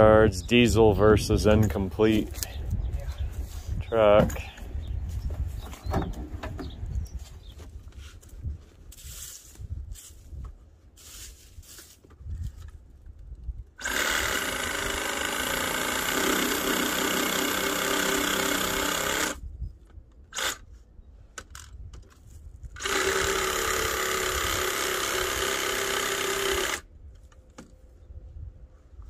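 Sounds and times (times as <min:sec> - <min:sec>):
power tool buzzing: 0:13.8 - 0:19.4, 0:22.8 - 0:26.9.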